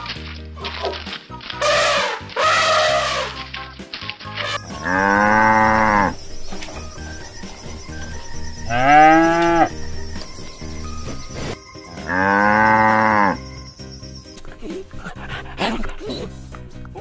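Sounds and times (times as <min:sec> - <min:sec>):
cattle mooing: 0:04.4 - 0:06.3, 0:08.6 - 0:09.8, 0:12.0 - 0:13.4.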